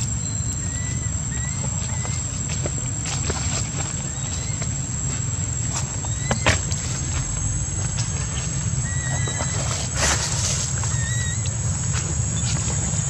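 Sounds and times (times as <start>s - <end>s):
high-pitched whine: 0.0s - 13.0s
rustle: 0.0s - 13.0s.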